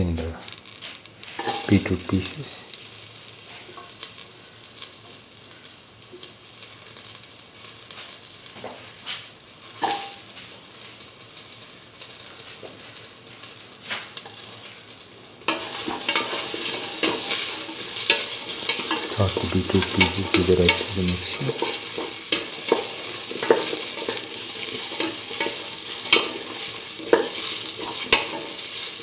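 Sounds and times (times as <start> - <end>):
food sizzling in oil: 0.0 - 29.0
stirring in a pan: 15.4 - 29.0.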